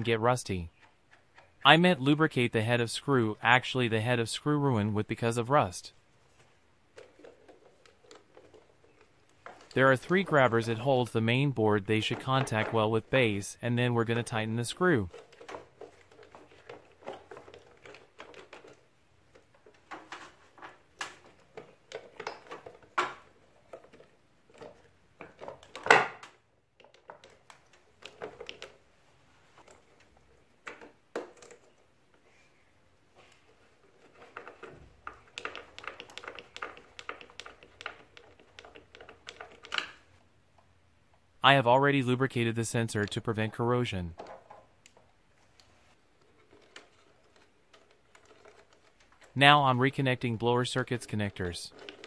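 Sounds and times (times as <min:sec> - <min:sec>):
plastic fittings clicking and knocking: 0:15.1 - 0:28.8, 0:33.8 - 0:40.1, 0:46.2 - 0:49.4.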